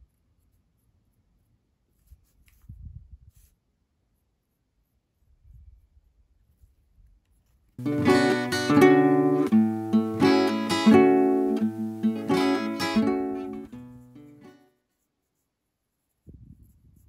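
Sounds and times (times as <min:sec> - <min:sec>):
strummed acoustic guitar: 0:07.8 - 0:14.6.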